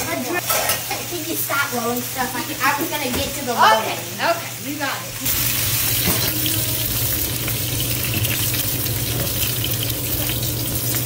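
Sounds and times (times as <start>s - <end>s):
chicken sizzling in frying pan: 0.0s - 11.0s.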